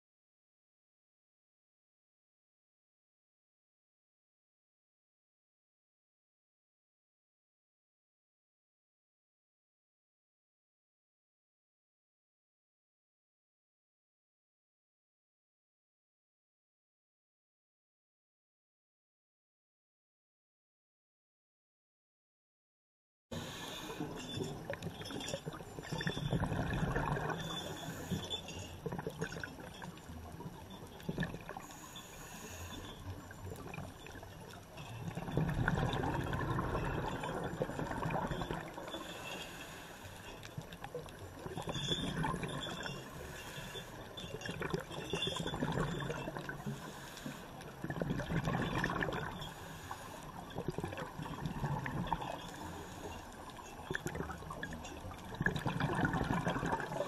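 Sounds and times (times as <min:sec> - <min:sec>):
steady underwater wash: 0:23.3 - 0:57.0
diver's exhaled bubbles rushing: 0:25.9 - 0:27.6, 0:35.1 - 0:38.8, 0:47.8 - 0:49.4, 0:55.3 - 0:57.0.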